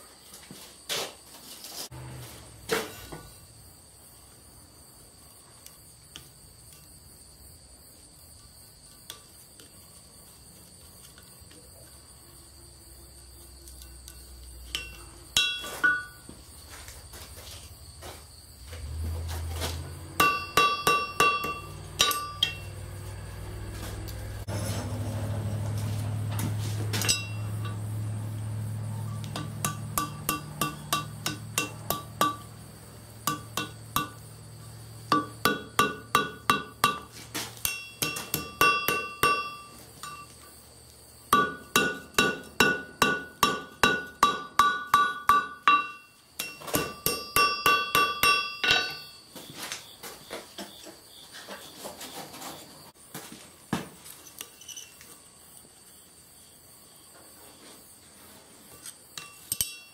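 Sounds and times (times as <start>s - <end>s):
hammer striking steel on anvil: 14.7s - 16.2s, 20.1s - 23.0s, 27.0s - 27.9s, 29.0s - 32.6s, 33.2s - 34.4s, 35.1s - 40.4s, 41.3s - 49.2s, 59.2s - 59.9s
low steady hum: 19.1s - 40.5s.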